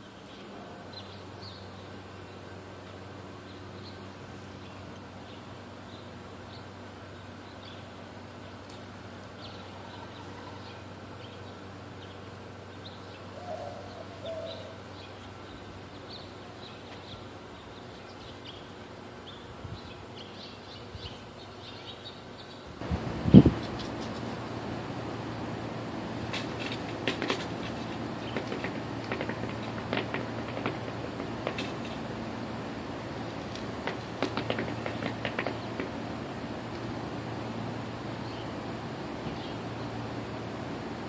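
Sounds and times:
small birds chirping: 0.0s - 40.6s
steady low hum: 0.0s - 41.0s
low bird call: 13.4s - 14.9s.

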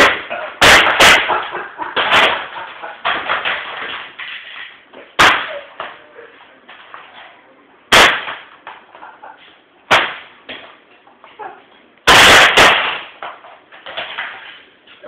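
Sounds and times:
laptop cracking impacts: 0.0s - 4.6s, 7.9s - 8.8s, 9.9s - 10.7s, 12.0s - 14.6s
laptop crashing on floor: 0.0s - 6.0s, 7.9s - 8.9s, 9.9s - 10.8s, 12.0s - 14.6s.

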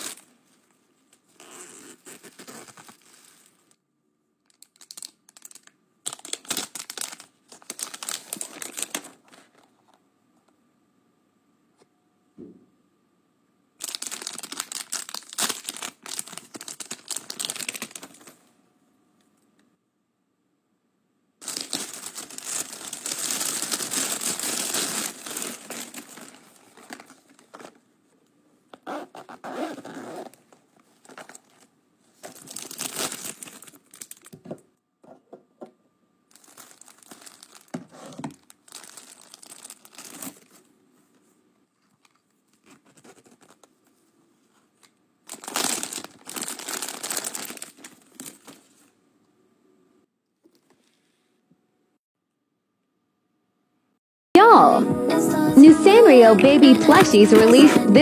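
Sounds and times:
packaging crinkling and tearing: 0.0s - 0.3s, 1.4s - 3.7s, 4.4s - 9.7s, 13.8s - 18.4s, 21.4s - 27.8s, 30.3s - 34.4s, 36.3s - 40.6s, 41.9s - 43.8s, 44.8s - 48.9s.

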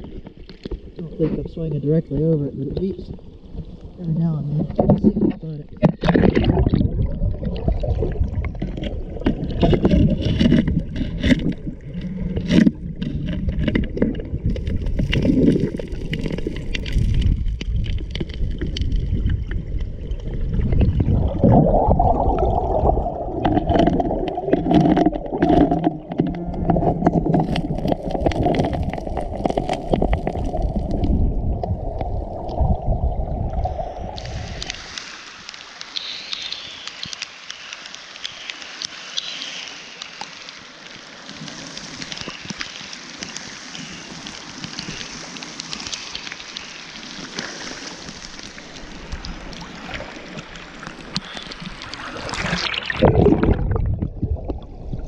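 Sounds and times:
underwater knocks and clicks: 0.0s - 32.8s, 48.4s - 55.0s
underwater rumble of moving water: 0.0s - 35.9s, 40.4s - 55.0s
rain falling on river: 2.5s - 19.1s, 21.5s - 31.1s, 34.1s - 53.6s.

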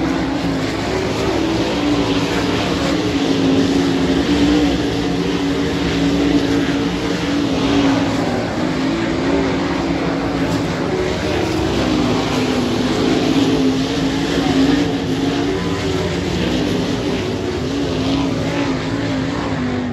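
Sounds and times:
race car engines roaring: 0.0s - 19.9s.

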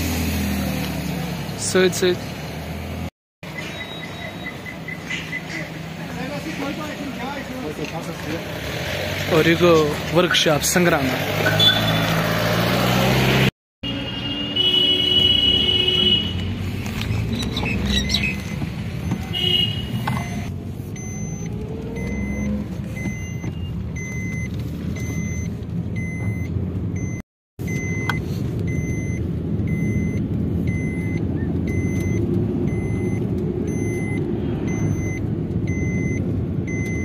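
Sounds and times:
car engine and road rumble: 0.0s - 37.0s
electronic warning beep: 3.6s - 5.5s, 20.1s - 37.0s.

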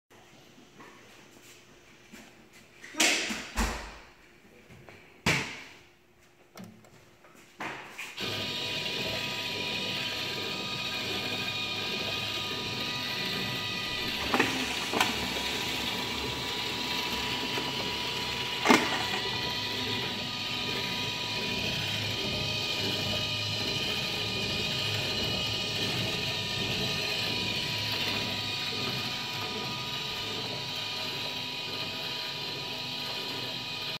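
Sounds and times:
cutter motor hum and whine: 8.2s - 34.0s.

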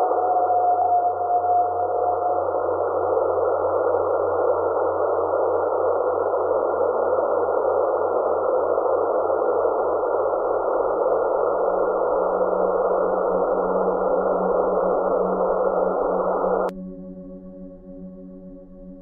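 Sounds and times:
radio static hiss: 2.5s - 16.7s.

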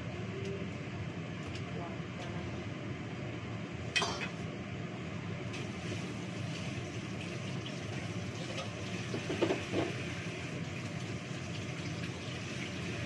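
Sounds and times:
steady low hum: 0.0s - 8.8s
tap water running into sink: 5.9s - 13.0s.

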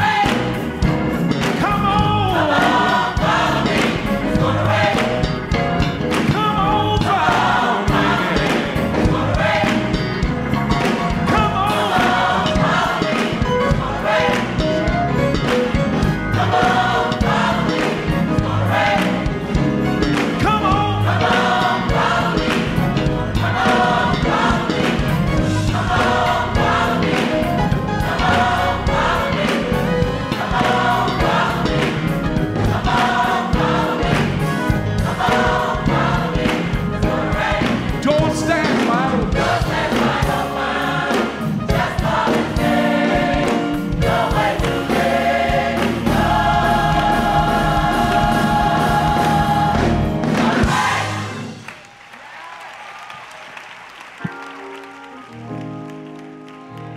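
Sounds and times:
gospel choir singing: 0.0s - 51.9s
keyboard accompaniment: 0.0s - 52.2s, 53.8s - 56.9s
man singing lead: 6.3s - 8.7s, 38.0s - 39.4s.

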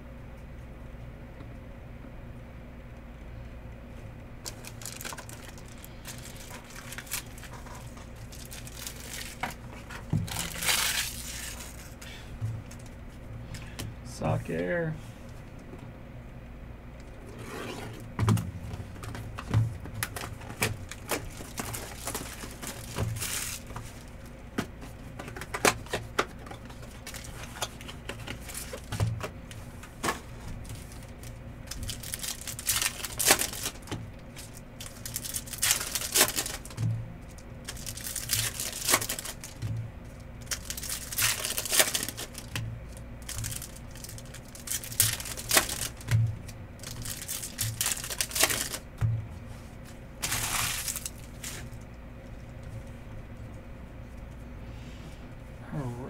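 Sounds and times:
foil wrappers tearing and crinkling: 4.4s - 12.1s, 20.0s - 24.3s, 25.3s - 29.3s, 29.9s - 48.9s, 50.2s - 51.8s.

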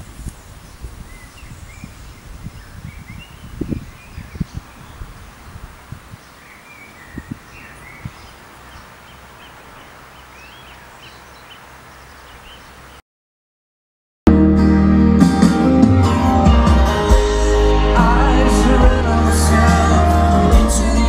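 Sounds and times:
small birds chirping: 0.0s - 13.0s.

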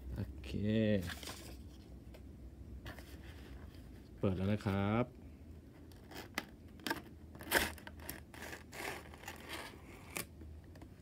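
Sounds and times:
cardboard flaps scraping and rustling: 1.0s - 1.8s.

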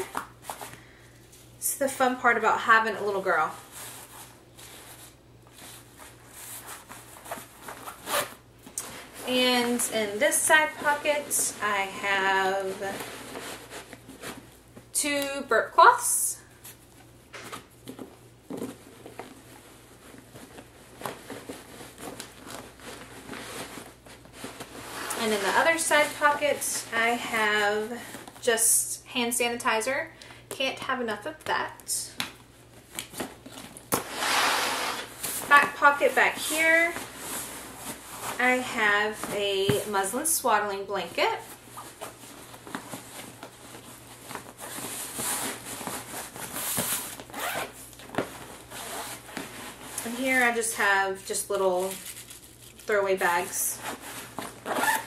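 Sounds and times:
fabric rustling: 16.5s - 28.4s, 32.4s - 40.1s, 40.7s - 50.7s, 51.5s - 55.0s.

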